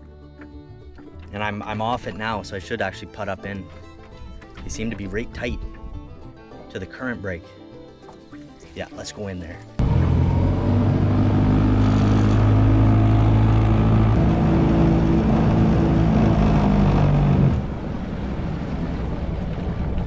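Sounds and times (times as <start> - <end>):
outboard motor running: 9.8 - 18.3.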